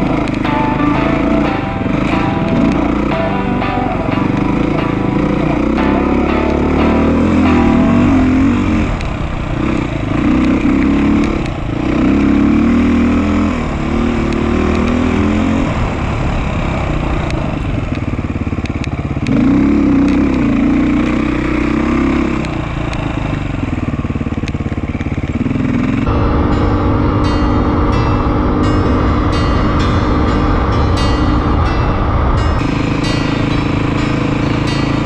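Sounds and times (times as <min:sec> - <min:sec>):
dirt bike engine revving: 0:00.0 - 0:17.7, 0:25.3 - 0:35.0.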